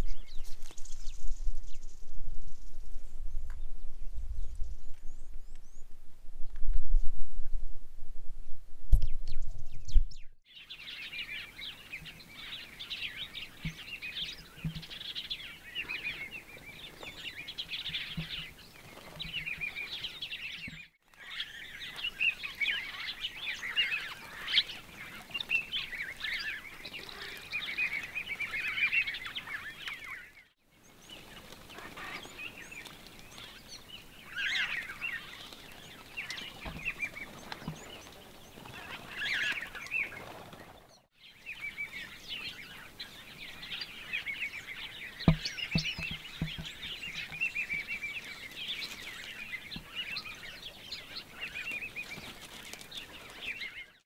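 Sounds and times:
small birds chirping: 9.0s - 54.0s
low knocks: 45.3s - 47.0s.

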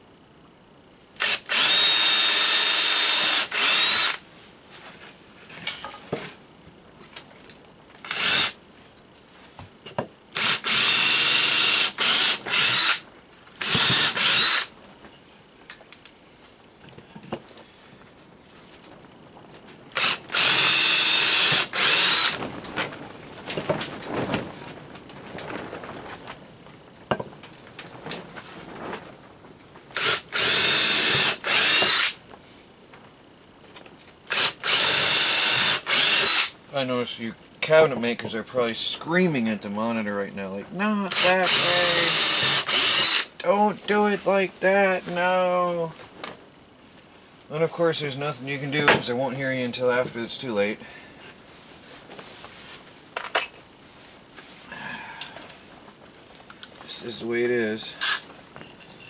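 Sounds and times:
cordless drill boring into wood: 1.2s - 4.2s, 8.0s - 8.6s, 10.4s - 13.0s, 13.6s - 14.7s, 20.0s - 22.4s, 30.0s - 32.2s, 34.3s - 36.6s, 41.1s - 43.4s, 58.0s - 58.2s
drill trigger blips: 1.2s - 4.2s, 10.4s - 13.0s, 13.6s - 14.7s, 20.0s - 22.4s, 30.0s - 32.2s, 34.3s - 36.5s, 41.1s - 43.3s, 58.0s - 58.2s.

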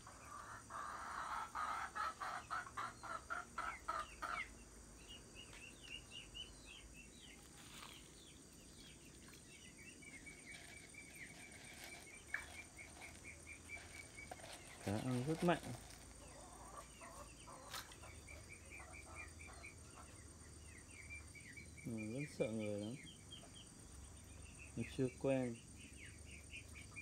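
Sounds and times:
chicken clucking: 0.0s - 4.6s, 10.2s - 20.2s
small birds chirping faintly: 0.0s - 27.0s.

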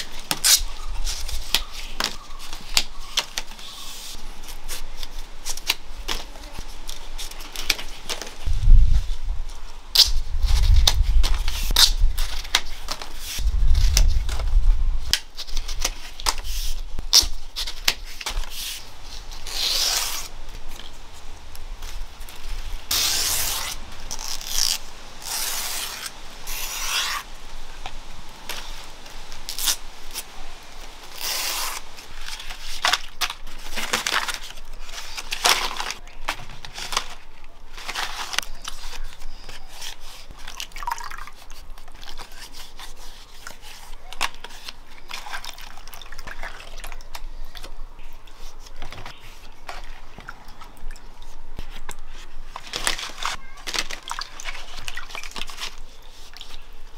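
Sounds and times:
hands squishing wet food mixture: 42.9s - 56.9s.

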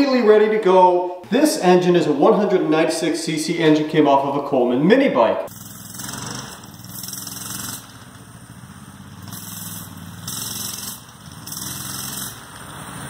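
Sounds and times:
mini bike engine revving: 5.5s - 13.0s.

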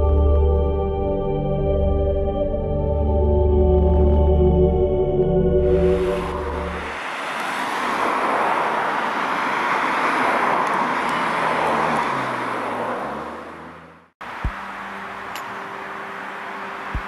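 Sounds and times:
cars going by: 5.6s - 17.0s.

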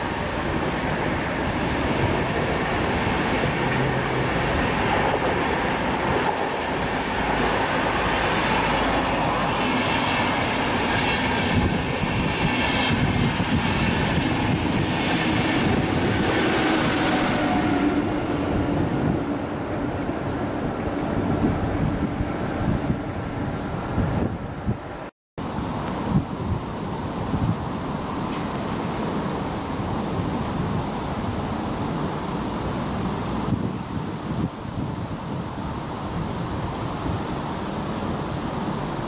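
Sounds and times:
train wheels rumbling on rails: 0.0s - 25.1s.

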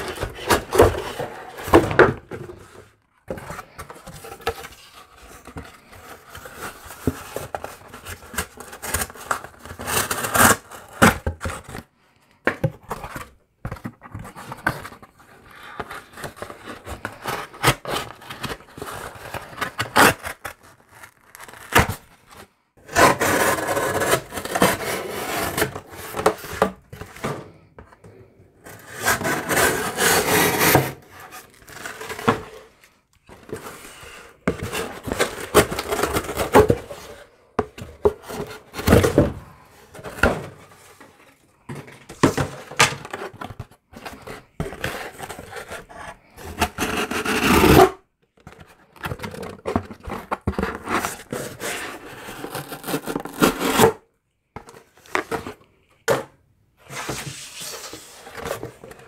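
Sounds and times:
cardboard rustling and knocking: 0.0s - 8.6s, 33.3s - 45.7s.

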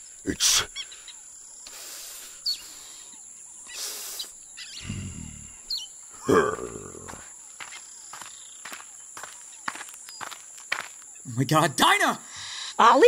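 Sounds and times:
bird chirps: 0.4s - 11.5s
rushes of hiss: 3.7s - 4.4s
pitched animal-like cry: 6.2s - 7.2s.

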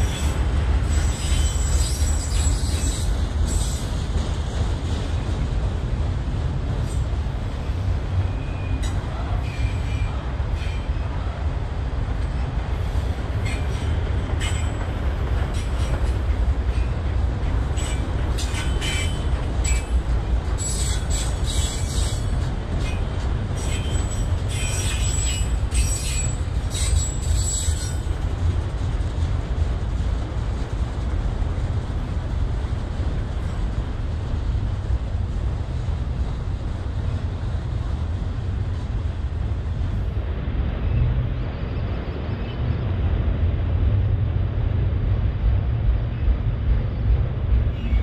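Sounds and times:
high-pitched wheel squeals: 0.0s - 3.8s
train wheels rumbling on track: 0.0s - 48.0s.

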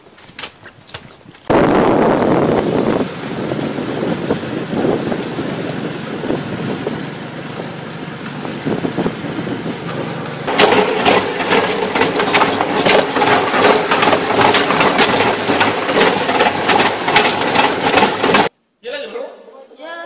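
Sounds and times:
vehicle rumbling on street: 1.5s - 18.5s
heavy clattering and rattling: 2.5s - 18.5s.

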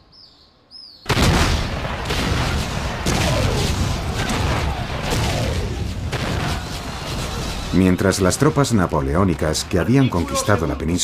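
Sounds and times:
cannon fire booms: 1.1s - 9.8s.

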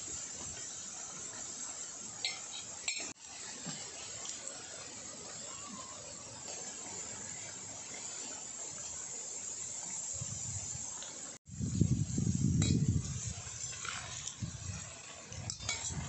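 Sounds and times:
steady hiss: 0.0s - 16.0s
ladle clinking steel bowl: 2.2s - 3.1s.

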